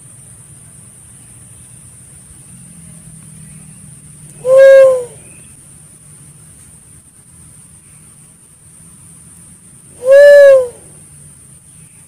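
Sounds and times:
steady high hiss: 0.0 - 12.0
dove low hoot: 4.3 - 5.4, 10.0 - 10.9.

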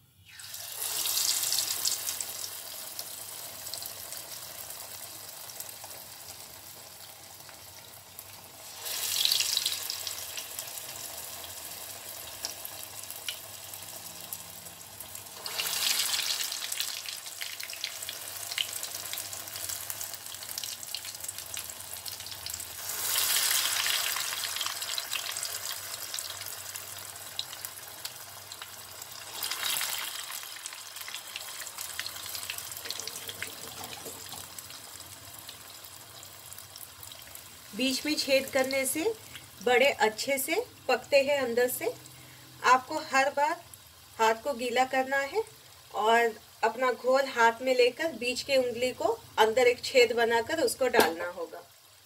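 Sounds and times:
batter sizzling in hot oil: 0.0 - 52.0.

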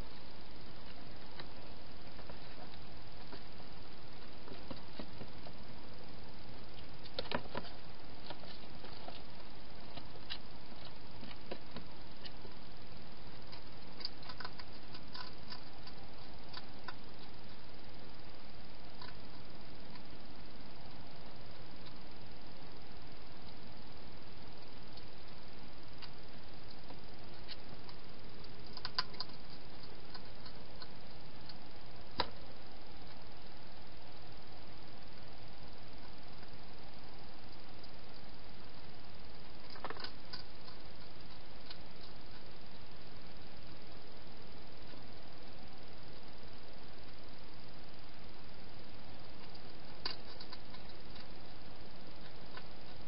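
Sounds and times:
steady hiss: 0.0 - 53.0
hedgehog chewing crunches: 13.3 - 17.8, 26.0 - 32.4, 39.6 - 42.6, 49.4 - 51.5.

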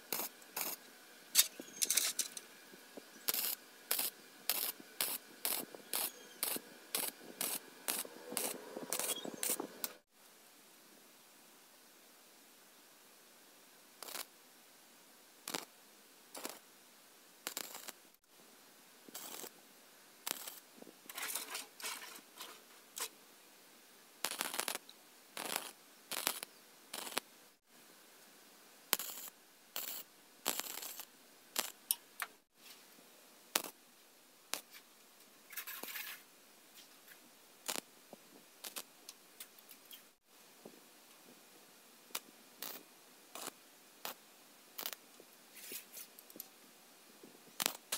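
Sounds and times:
welding arc crackles: 0.0 - 2.4, 3.0 - 10.0, 14.0 - 14.3, 15.5 - 15.7, 16.3 - 16.6, 17.4 - 18.2, 19.1 - 19.5, 20.2 - 23.1, 24.2 - 27.3, 28.9 - 32.3, 33.5 - 33.8, 34.5 - 34.8, 37.6 - 37.9, 38.6 - 40.2, 42.1 - 44.2, 44.8 - 46.4, 47.6 - 47.9.

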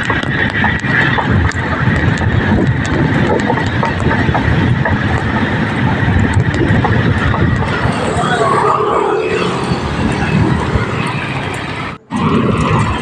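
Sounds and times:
scattered clicks: 0.0 - 8.0
wind buffeting microphone: 0.0 - 13.0.

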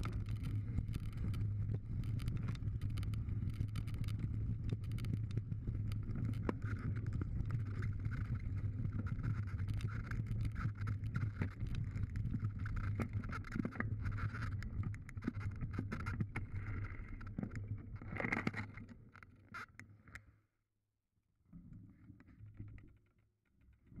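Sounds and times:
stones and bike rattling: 0.0 - 19.1.

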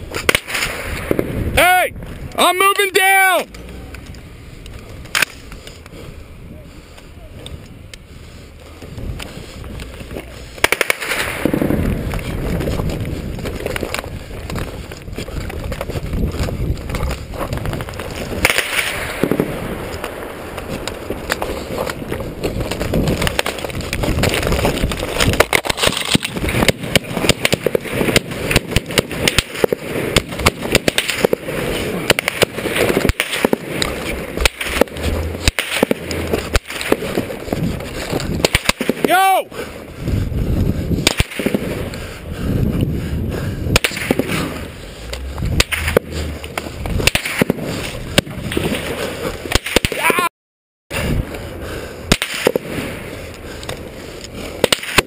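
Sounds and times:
gunfire cracks: 0.1 - 1.4, 10.6 - 12.3, 17.6 - 22.0, 23.0 - 37.5, 38.3 - 39.2, 41.0 - 41.9, 43.7 - 50.2, 52.1 - 53.0, 54.6 - 55.0.

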